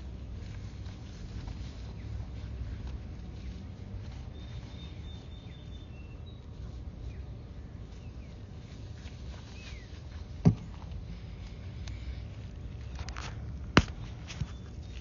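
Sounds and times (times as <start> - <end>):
low steady rumble: 0.0 - 15.0
faint bird chirps: 4.2 - 8.5, 9.4 - 10.0.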